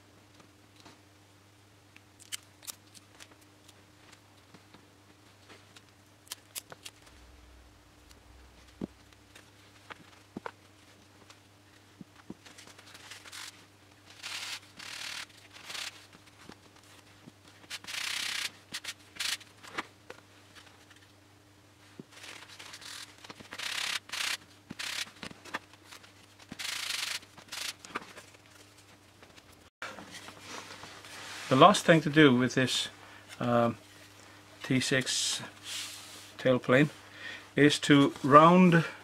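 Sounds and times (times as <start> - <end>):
faint steady hum: 0.0 - 39.0
scratchy rubbing and scraping: 12.9 - 16.1, 17.7 - 19.4, 22.2 - 25.2, 26.5 - 27.8.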